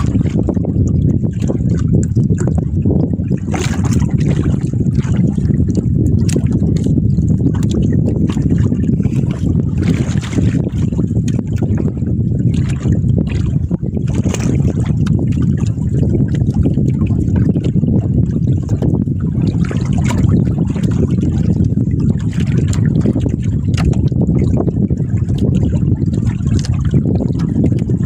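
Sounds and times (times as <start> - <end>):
low rumble: 0.0 - 28.0
water trickling and splashing: 0.0 - 28.0
short splashes: 3.3 - 6.9, 7.5 - 17.7.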